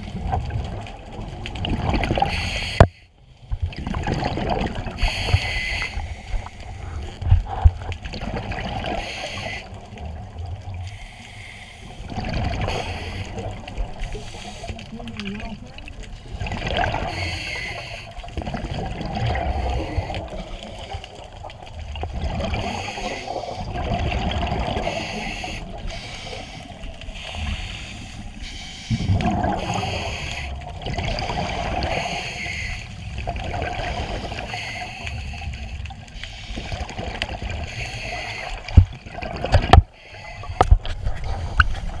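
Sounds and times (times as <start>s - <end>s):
gurgling exhaled bubbles: 0.0s - 2.8s, 3.4s - 11.0s, 11.8s - 42.0s
regulator hissing inhale: 2.3s - 3.2s, 5.0s - 7.1s, 9.0s - 9.8s, 10.8s - 12.1s, 12.7s - 14.9s, 17.0s - 18.4s, 19.5s - 21.2s, 22.6s - 23.7s, 24.8s - 30.7s, 31.8s - 33.1s, 33.9s - 36.9s, 37.6s - 38.8s, 39.9s - 40.7s.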